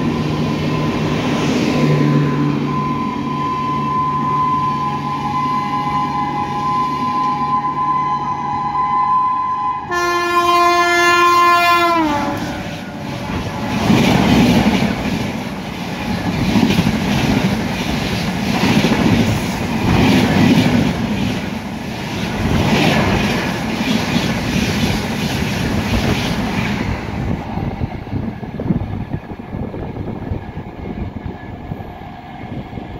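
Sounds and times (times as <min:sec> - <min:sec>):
train coaches rumbling past: 0:00.0 - 0:32.9
train horn long blast: 0:01.8 - 0:13.8.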